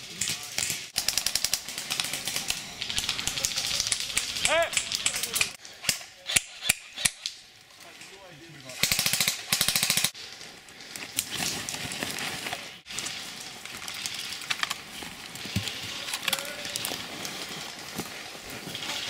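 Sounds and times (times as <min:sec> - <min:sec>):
airsoft gun full-auto bursts: 0:01.0 - 0:05.5, 0:08.8 - 0:10.2.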